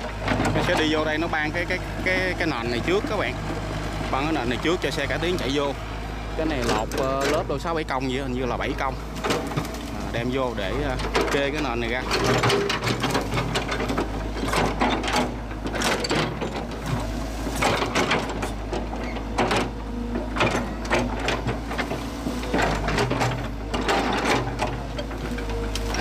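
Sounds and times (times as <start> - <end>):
excavator diesel engine: 0.0 - 26.0.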